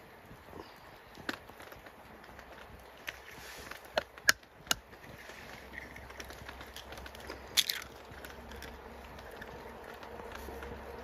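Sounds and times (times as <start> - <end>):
campfire crackling and popping: 0.0 - 11.0
low steady hiss: 0.0 - 11.0.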